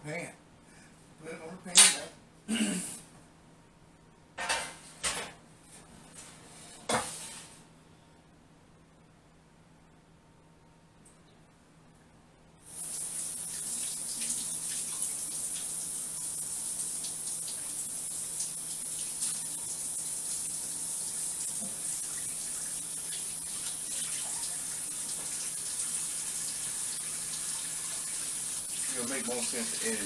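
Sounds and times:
faucet running into sink: 12.7s - 30.0s.

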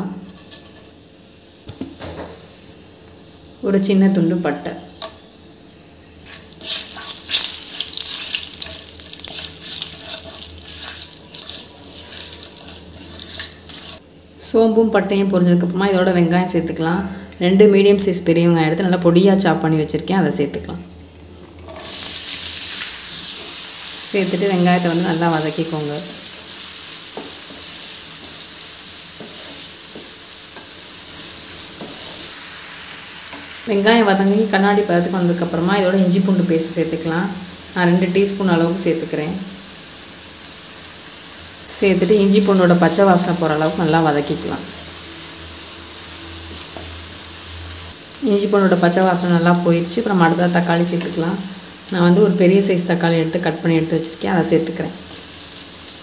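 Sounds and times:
spices sizzling in hot oil: 0.0s - 16.7s, 21.3s - 56.0s
spatula scraping pan: 6.3s - 14.0s.

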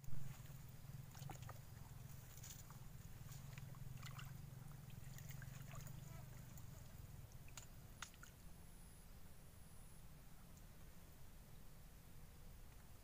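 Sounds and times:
shallow water sloshing and splashing: 0.0s - 8.4s
steady low hum: 0.0s - 13.0s.

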